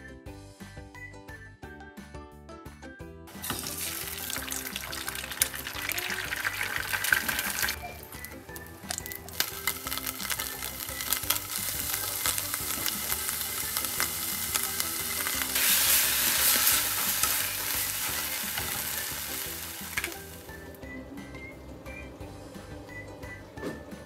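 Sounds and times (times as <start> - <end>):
soft background music: 0.0 - 24.0
food sizzling in a frying pan: 3.3 - 20.6.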